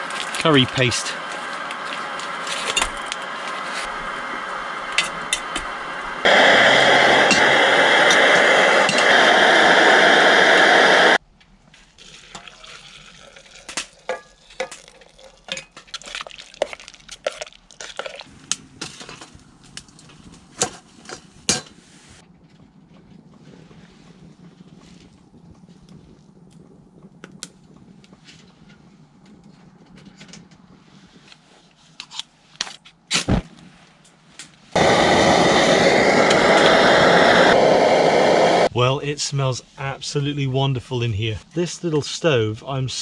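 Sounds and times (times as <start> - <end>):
loud steady rushing hiss: 0.0 - 11.2, 34.7 - 43.0
crackles: 0.0 - 38.9.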